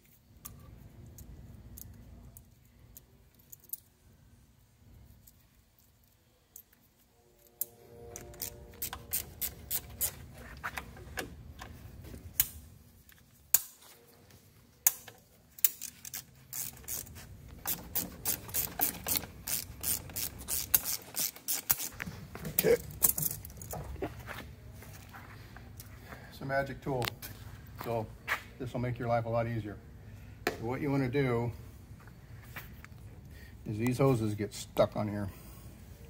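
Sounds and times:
hose clamp screws clicking: 14.8s - 22.0s.

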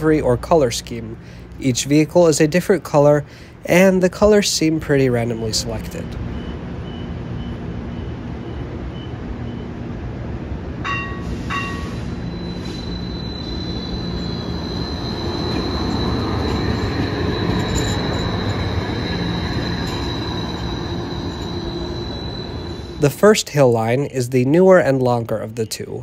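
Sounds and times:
streetcar chimes: 0.0s - 26.0s
streetcar rumble: 0.0s - 26.0s
high-pitched squeal: 10.9s - 24.9s.

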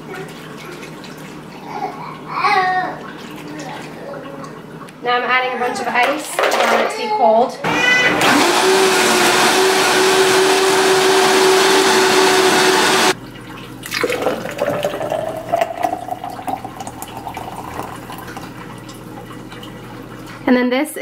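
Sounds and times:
blender motor running on high: 7.6s - 13.2s.

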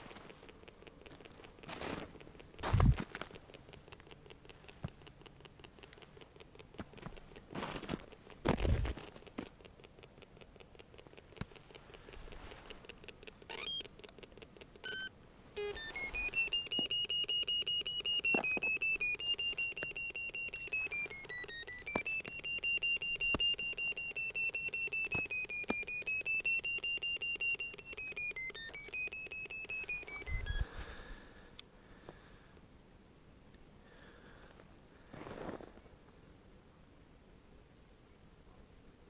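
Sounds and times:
pulsing electronic beeping: 0.0s - 30.7s
stepped beeps: 0.0s - 31.1s.

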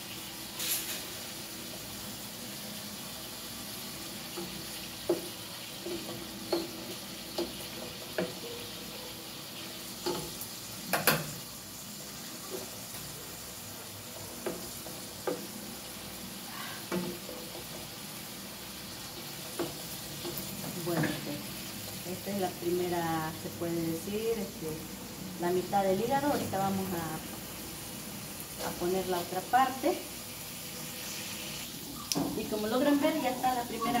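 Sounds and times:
liver sizzling in a pot: 0.0s - 34.0s
spoon knocking and scraping pot: 4.3s - 8.6s, 10.0s - 11.4s, 14.4s - 15.5s, 19.2s - 21.2s.

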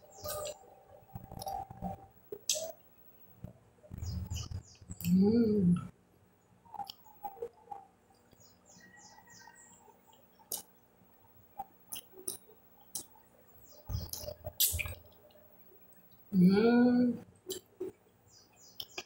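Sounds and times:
faint high chirps: 0.0s - 2.8s, 6.6s - 15.9s
person chewing wet mouth smacks: 13.9s - 15.1s.

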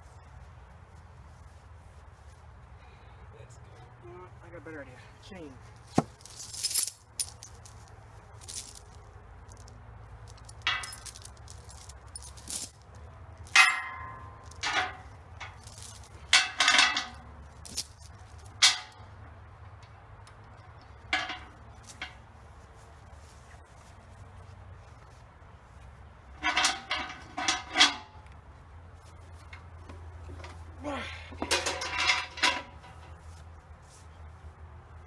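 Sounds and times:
metal chain clinking: 5.9s - 19.2s, 19.8s - 22.2s, 26.3s - 28.3s, 29.0s - 33.4s.

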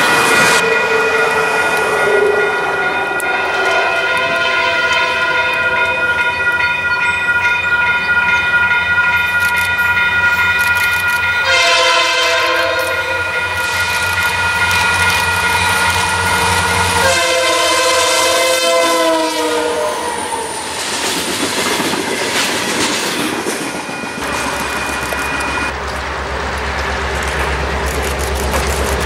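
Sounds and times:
railroad crossing bell ringing: 0.0s - 20.8s, 22.0s - 25.8s
locomotive engine hum: 0.0s - 29.0s
locomotive air horn blasts: 3.4s - 5.8s, 11.4s - 13.8s, 16.0s - 20.6s.

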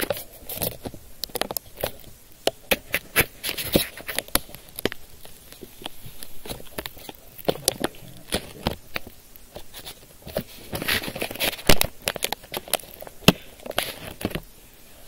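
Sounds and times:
crinkling: 0.0s - 15.0s.

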